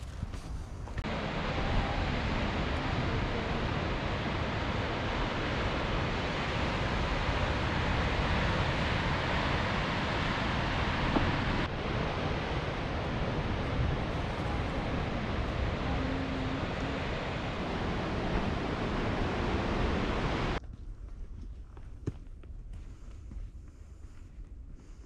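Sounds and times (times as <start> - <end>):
wind buffeting microphone: 0.0 - 20.6
ocean surf rushing: 1.0 - 20.6.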